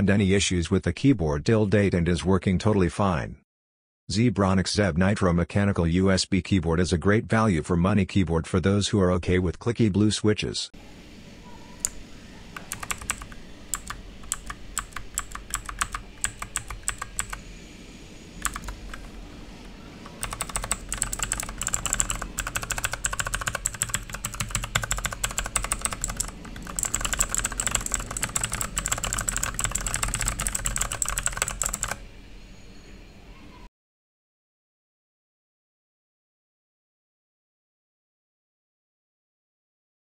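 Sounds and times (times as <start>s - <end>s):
clicky mechanical keyboard typing: 12.6s - 17.4s, 18.4s - 32.0s.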